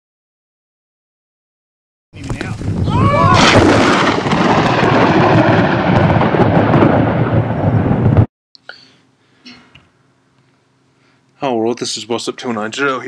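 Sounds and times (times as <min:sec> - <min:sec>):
thunder rumbling: 0:02.6 - 0:08.3.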